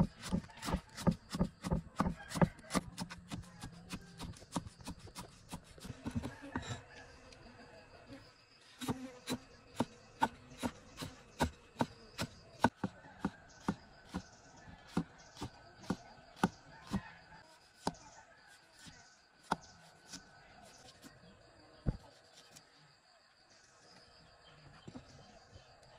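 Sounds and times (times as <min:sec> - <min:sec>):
cleaver chopping on wooden block: 0:00.0 - 0:06.7, 0:08.8 - 0:14.3, 0:14.9 - 0:17.1, 0:18.8 - 0:20.2
insects chirring: 0:04.4 - 0:12.7.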